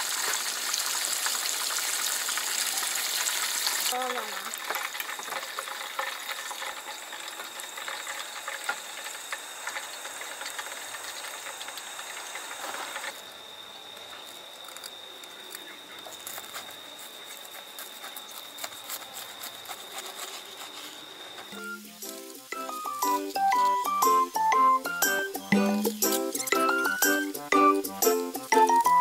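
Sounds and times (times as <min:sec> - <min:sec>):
cutlet sizzling in frying oil: 0:00.0 - 0:29.0
knife cutting crisp crust: 0:14.2 - 0:21.6.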